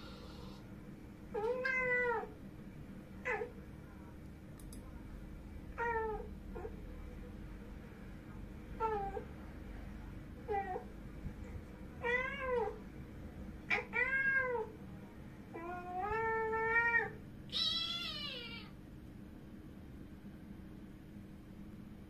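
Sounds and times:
cat meowing: 1.4 - 2.3, 15.6 - 18.7.

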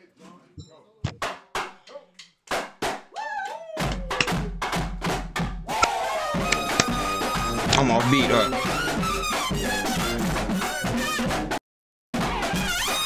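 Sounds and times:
brass horns: 5.8 - 11.6, 12.2 - 13.0
marching band playing: 6.4 - 11.0.

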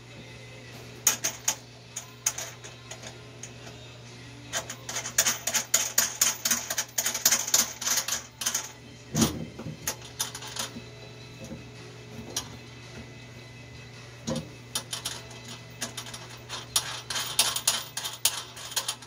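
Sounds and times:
steady low hum: 0.0 - 19.0
small metal parts clicking and rattling: 1.0 - 3.8, 4.5 - 10.8, 14.3 - 19.0.

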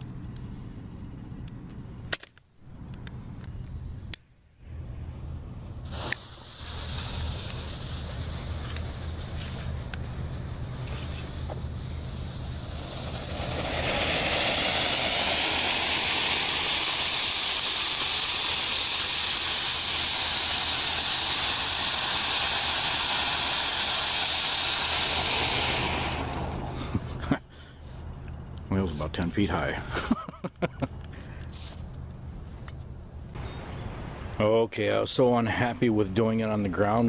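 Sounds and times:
firework fountain hissing: 5.8 - 28.2.

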